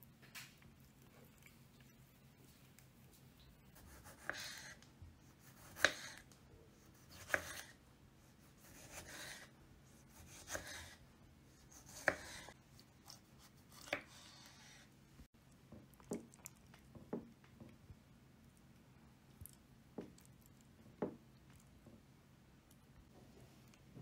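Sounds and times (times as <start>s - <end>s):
knife slicing tomato on board: 3.8s - 6.3s, 6.9s - 7.8s, 8.4s - 11.0s, 11.6s - 14.9s.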